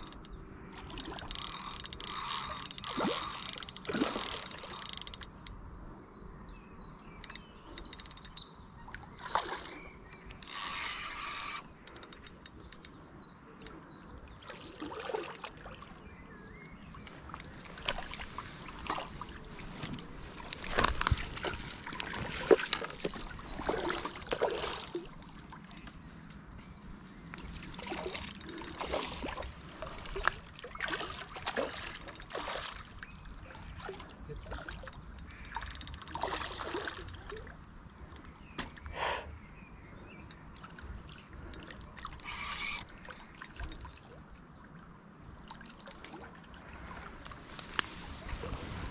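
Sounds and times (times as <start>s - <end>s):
fishing reel clicking and rattling: 0.0s - 5.6s, 7.2s - 8.5s, 10.3s - 13.0s, 24.2s - 25.4s, 27.8s - 29.3s, 31.5s - 33.0s, 34.8s - 37.4s, 42.2s - 43.8s
water splashes: 9.0s - 9.9s, 14.4s - 16.1s, 17.1s - 25.8s, 27.4s - 35.0s.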